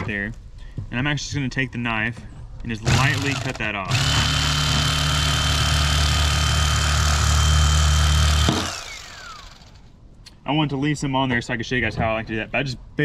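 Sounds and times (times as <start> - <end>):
electric knife motor whine: 2.9 - 9.9.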